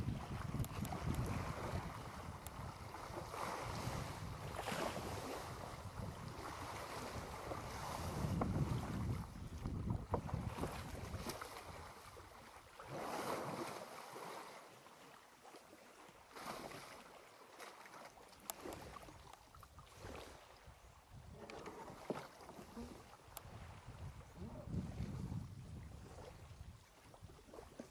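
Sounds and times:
wind rumbling on microphone: 0.0s - 12.3s, 19.8s - 22.0s, 22.7s - 27.9s
water splashing and sloshing: 0.0s - 27.9s.

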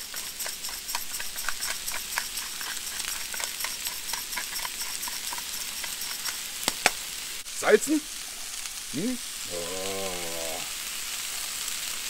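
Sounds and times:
bacon and mushrooms sizzling: 0.0s - 12.0s
fat crackling pops: 5.8s - 7.2s.

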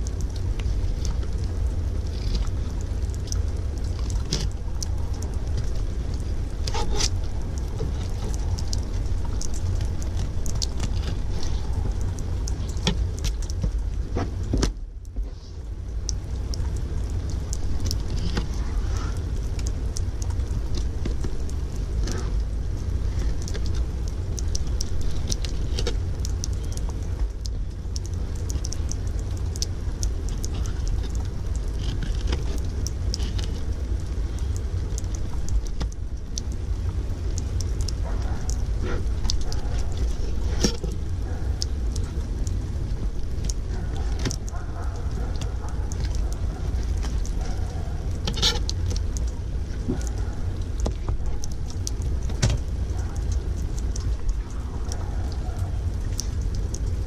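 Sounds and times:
water running and spattering: 0.0s - 57.0s.

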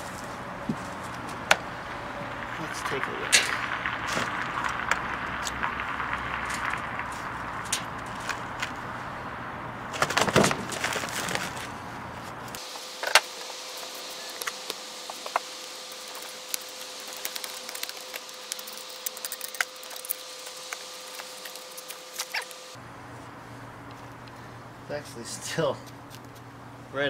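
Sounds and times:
faint steady hum: 0.0s - 27.0s
sand crumbling and falling: 2.4s - 9.0s, 12.4s - 22.8s.

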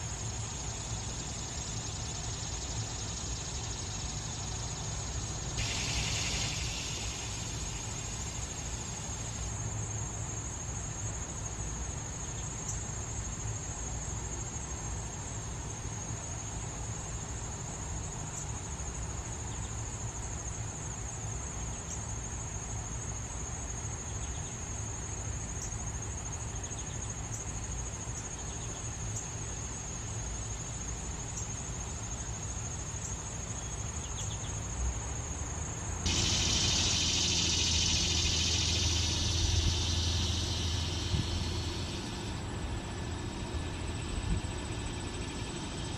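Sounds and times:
faint chirps: 0.0s - 9.6s, 36.1s - 45.9s
cicadas buzzing: 0.0s - 45.9s
high-pitched insect song: 0.0s - 45.9s
low rumble: 36.1s - 45.9s.

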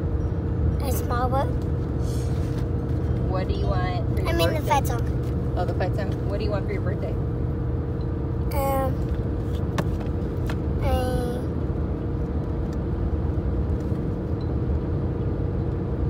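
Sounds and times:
car cabin road rumble: 0.0s - 16.0s
child's voice: 0.8s - 1.6s, 4.2s - 5.1s, 8.5s - 9.1s, 10.8s - 11.5s.

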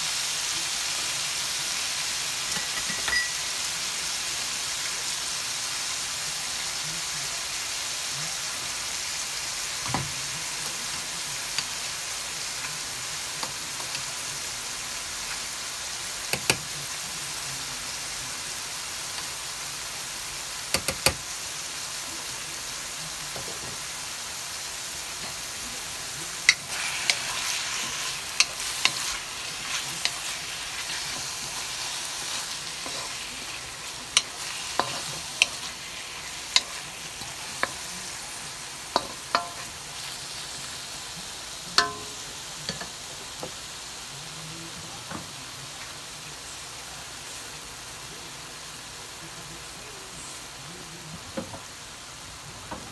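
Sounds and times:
meat sizzling in a wok: 0.0s - 52.9s.

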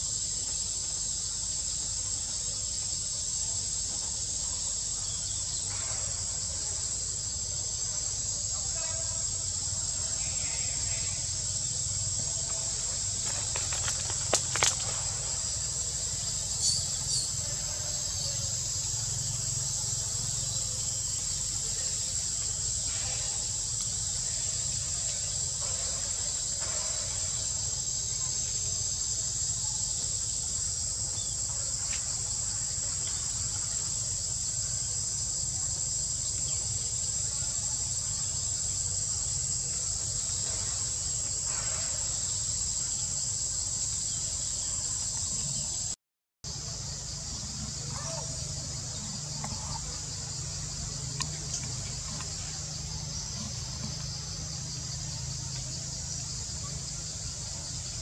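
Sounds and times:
high-pitched insect chorus: 0.0s - 58.0s.

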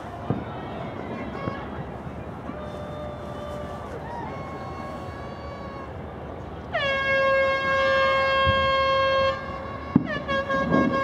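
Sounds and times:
horn blowing: 6.7s - 11.0s.

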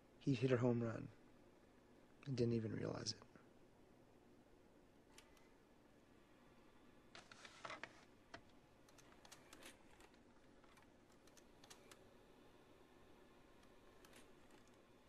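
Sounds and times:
faint irregular clicks: 5.1s - 5.6s, 7.1s - 12.1s.

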